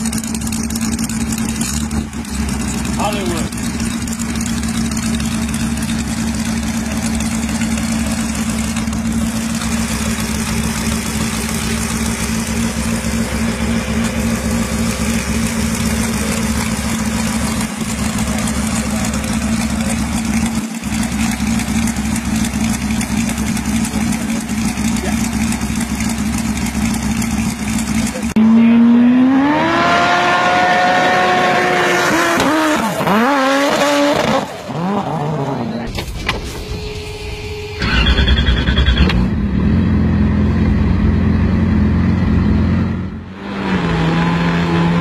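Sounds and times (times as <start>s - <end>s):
motorcycle engine idling: 0.0s - 28.4s.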